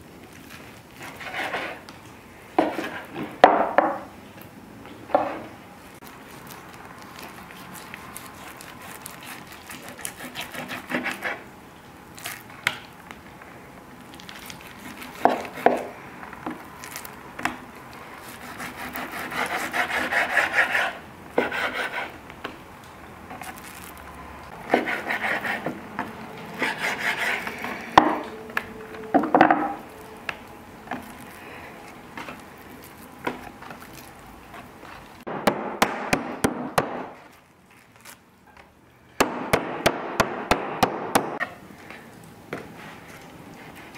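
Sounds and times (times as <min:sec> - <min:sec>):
knife slicing meat on wood: 0:06.1 - 0:11.4, 0:14.6 - 0:15.9
meat mallet pounding: 0:35.3 - 0:37.2, 0:39.2 - 0:41.4.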